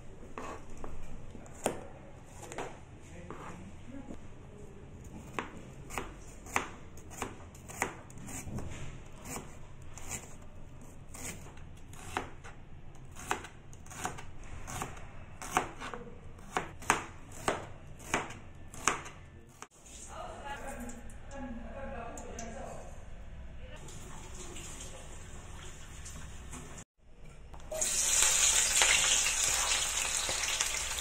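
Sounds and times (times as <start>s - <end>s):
knife chopping on cutting board: 0.4s - 0.6s, 13.1s - 19.2s.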